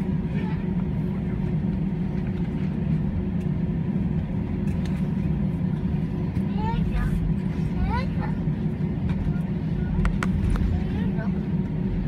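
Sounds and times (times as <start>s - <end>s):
aircraft cabin low rumble: 0.0s - 12.0s.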